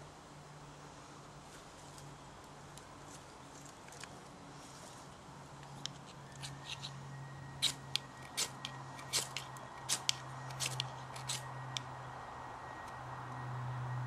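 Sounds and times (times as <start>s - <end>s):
knife scraping: 6.0s - 7.0s, 7.6s - 11.5s.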